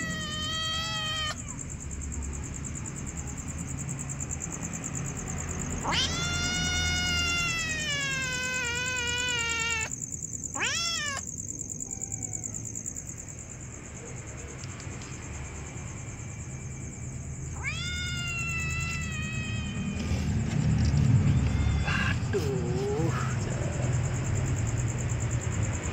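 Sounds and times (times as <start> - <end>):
cats meowing: 0.0 - 1.7, 5.6 - 9.9, 10.5 - 12.8, 17.5 - 23.7.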